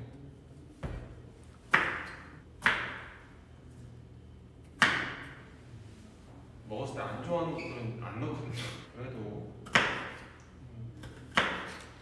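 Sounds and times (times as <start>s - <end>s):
knife chopping on cutting board: 1.7s - 3.2s, 4.8s - 5.4s, 9.6s - 10.4s, 11.0s - 12.0s.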